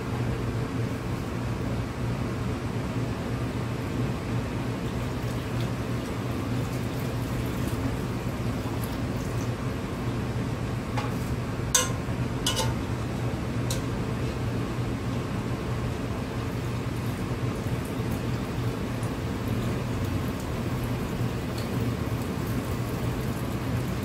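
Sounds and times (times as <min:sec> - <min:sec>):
steady background hum: 0:00.0 - 0:24.0
liquid pouring into a sink: 0:04.8 - 0:09.6, 0:16.5 - 0:24.0
metal pot clinks: 0:11.8 - 0:12.8.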